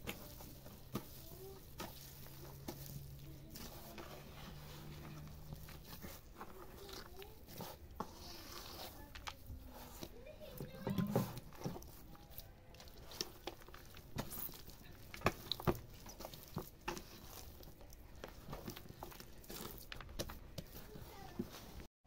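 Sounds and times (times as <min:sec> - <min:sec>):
dough slaps and squelches: 0:00.0 - 0:21.9.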